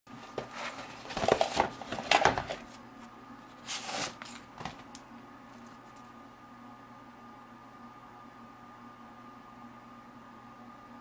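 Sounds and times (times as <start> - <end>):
paper rustling: 0.2 - 2.8, 3.6 - 4.8.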